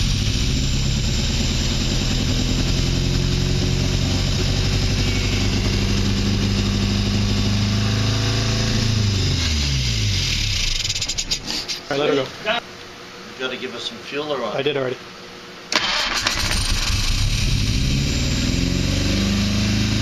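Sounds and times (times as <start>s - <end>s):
car engine running: 0.0s - 11.5s.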